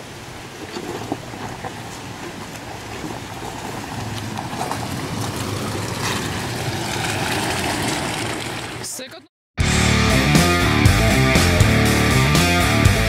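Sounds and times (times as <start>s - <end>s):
vehicle engines running: 0.2s - 9.2s
tyres crunching over stones: 0.3s - 8.8s.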